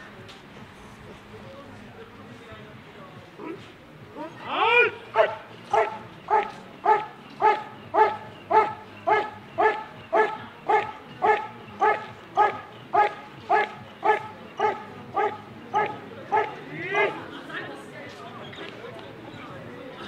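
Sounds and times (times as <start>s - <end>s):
dog barking steadily: 4.8s - 17.3s.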